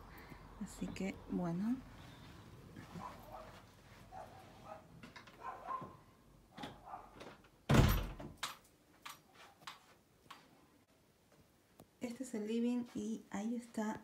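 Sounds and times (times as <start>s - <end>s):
door shutting with heavy thud: 7.7s - 8.4s.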